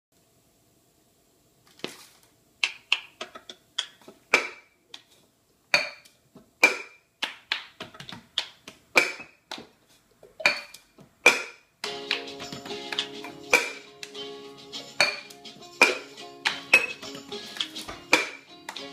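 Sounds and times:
hands clapping and patting dough: 0:02.6 - 0:03.2, 0:07.2 - 0:09.8, 0:11.8 - 0:14.2, 0:15.1 - 0:18.9
music: 0:11.8 - 0:18.9.

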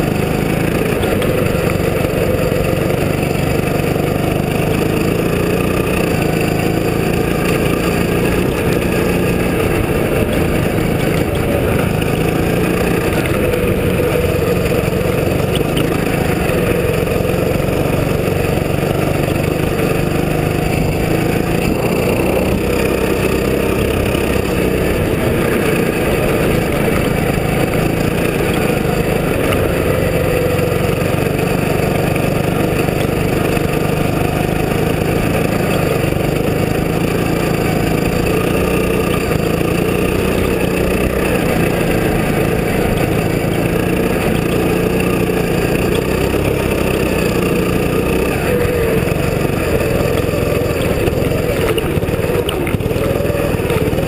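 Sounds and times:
go-kart engine revving: 0:00.0 - 0:54.0.

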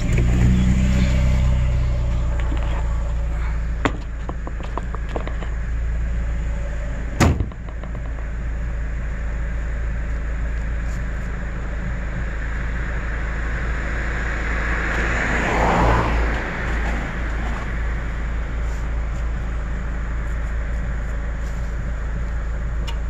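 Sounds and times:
vehicle road rumble: 0:00.0 - 0:23.0
sharp bang: 0:07.2 - 0:08.1.

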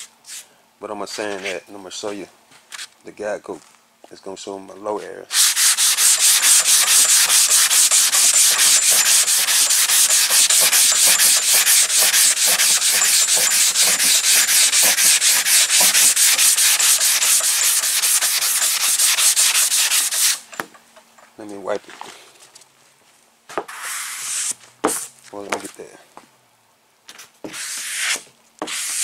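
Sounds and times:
wet sandpaper scrubbing: 0:05.0 - 0:20.5, 0:23.7 - 0:25.0, 0:27.5 - 0:29.0.

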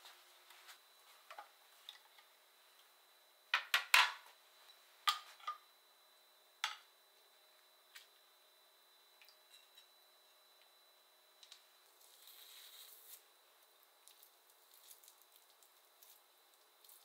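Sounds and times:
soft squishing and tearing: 0:14.0 - 0:17.0.

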